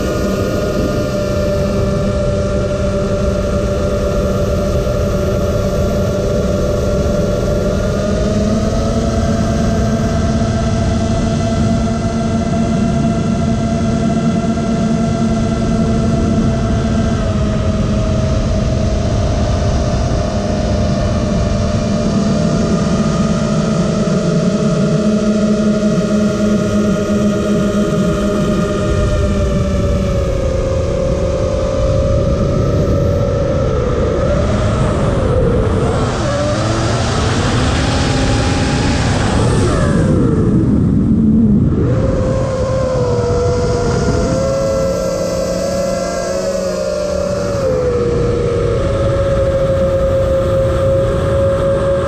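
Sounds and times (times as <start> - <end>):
wind buffeting microphone: 0.0 - 23.8, 24.6 - 52.0
model aircraft motor buzzing: 20.6 - 52.0.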